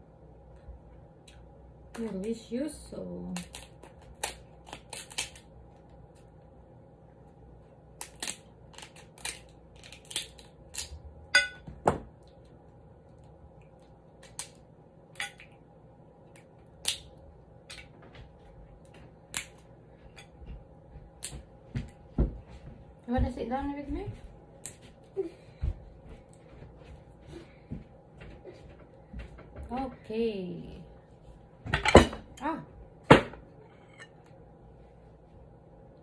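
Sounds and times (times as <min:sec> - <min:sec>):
crab shell cracking: 0:03.4 - 0:05.9, 0:08.0 - 0:11.0, 0:13.6 - 0:15.6, 0:16.3 - 0:17.9, 0:19.3 - 0:19.6.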